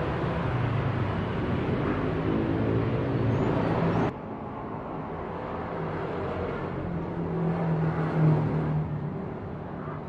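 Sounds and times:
propeller plane passing overhead: 0.0s - 10.0s.

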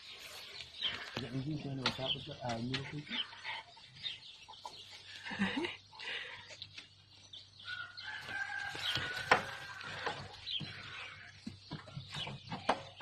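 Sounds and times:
rooster crowing: 7.7s - 10.3s.

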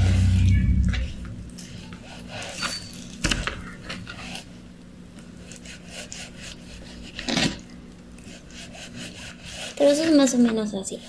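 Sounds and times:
knife sawing through raw meat: 2.0s - 2.6s, 5.4s - 7.4s, 8.2s - 10.0s.

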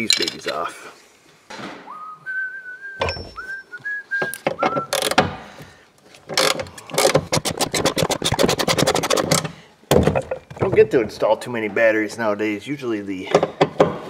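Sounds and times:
person whistling: 1.9s - 5.1s
hand ratchet clicking: 4.8s - 5.2s, 6.3s - 9.5s.

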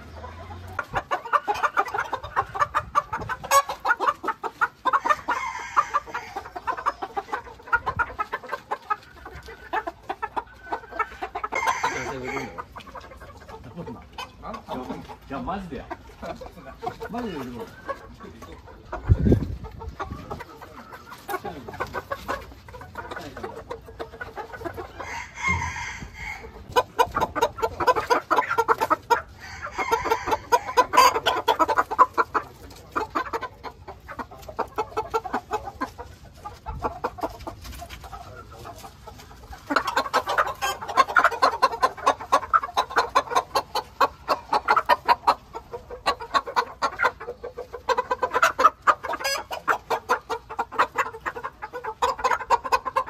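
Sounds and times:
chickens clucking: 0.0s - 53.0s
rooster crowing: 5.1s - 6.4s, 25.0s - 26.5s, 29.4s - 30.8s.

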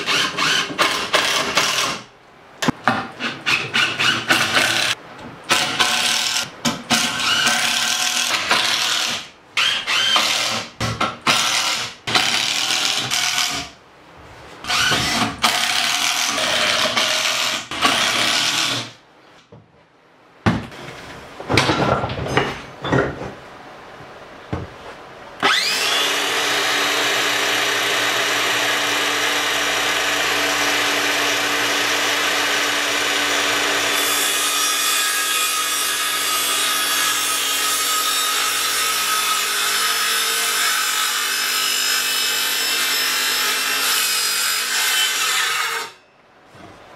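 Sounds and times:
circular saw cutting wood: 25.4s - 46.0s.

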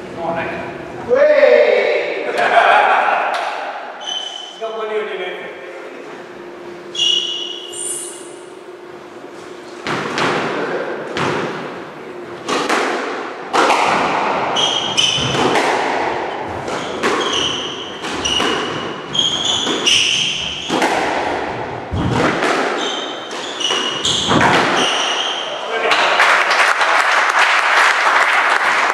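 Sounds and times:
shoes squeaking on floor: 4.0s - 4.6s, 6.9s - 8.5s, 14.5s - 15.6s, 16.5s - 20.8s, 22.7s - 25.6s
squash ball hits: 9.8s - 11.8s, 12.4s - 25.2s.

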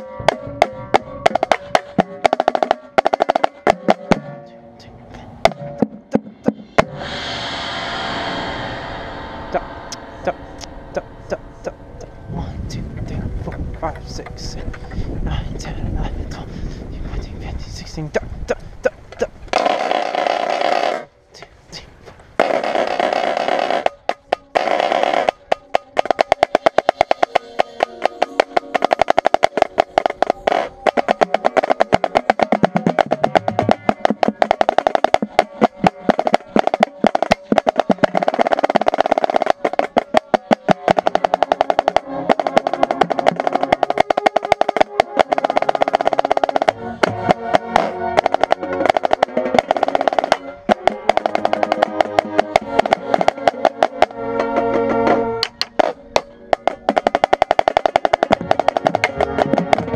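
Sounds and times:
marching snare drum rolls: 0.0s - 4.3s, 5.4s - 7.0s, 18.8s - 21.1s, 22.4s - 59.9s
marching band playing: 0.0s - 4.8s, 5.4s - 7.2s, 19.2s - 21.1s, 22.4s - 59.9s.

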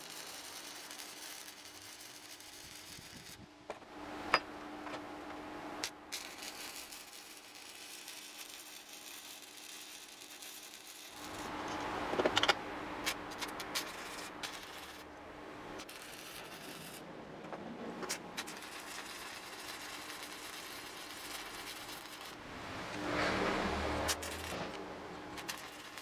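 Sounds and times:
welding arc crackling hiss: 0.0s - 3.5s, 5.8s - 12.2s, 13.0s - 15.1s, 15.7s - 17.1s, 18.0s - 22.6s, 23.5s - 26.0s.

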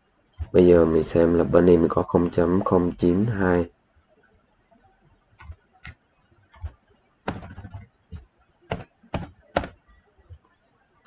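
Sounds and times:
keystrokes on computer keyboard: 5.4s - 10.4s.

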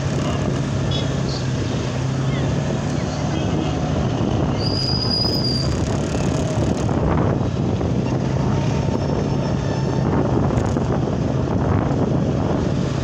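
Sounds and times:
wind rushing on microphone: 0.0s - 13.0s
brief high squeal: 4.6s - 5.8s.

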